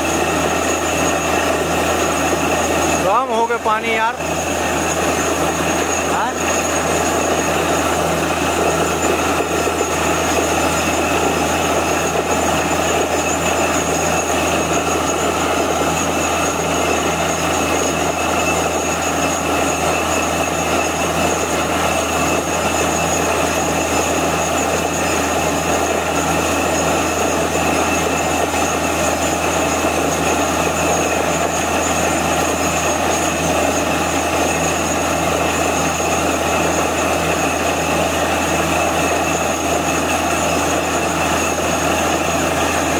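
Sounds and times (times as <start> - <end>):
high whine: 0.0 - 31.6
drilling rig engine drone: 0.0 - 42.9.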